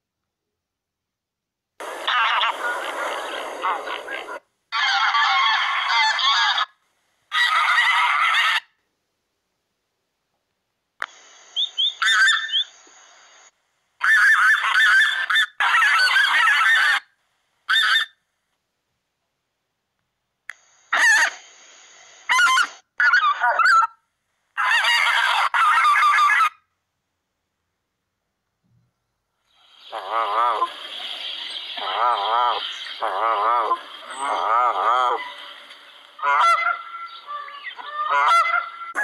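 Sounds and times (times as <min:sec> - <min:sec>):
recorded goose honking calls: 0:29.9 - 0:30.9, 0:31.8 - 0:39.0.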